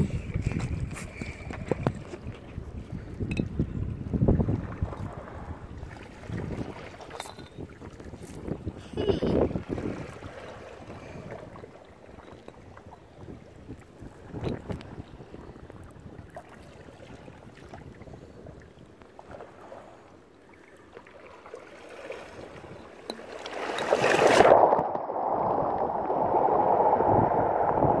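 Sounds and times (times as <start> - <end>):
sea water lapping on rocks: 4.3 - 28.0
wave surging in: 24.2 - 28.0.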